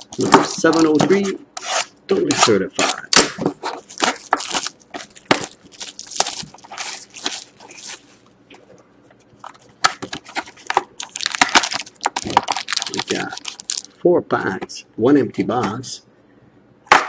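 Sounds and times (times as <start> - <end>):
plastic wrap tearing and crinkling: 2.9 - 8.2, 10.3 - 14.0.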